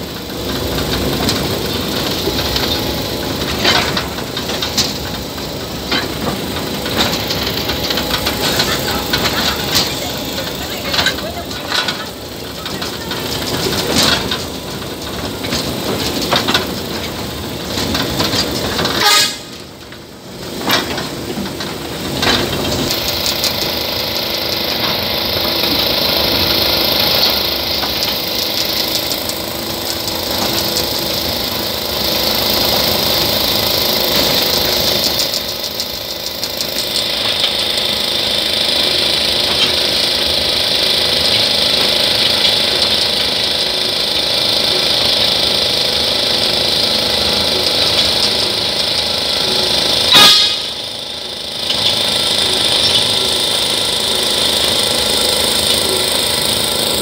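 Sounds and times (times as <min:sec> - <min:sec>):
train wagons rumbling and rattling: 0:00.0 - 0:57.0
voices: 0:08.0 - 0:14.4.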